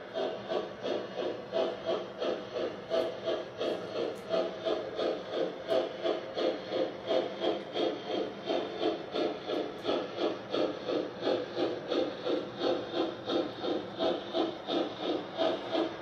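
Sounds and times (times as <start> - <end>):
steam locomotive chuffing: 0.0 - 16.0.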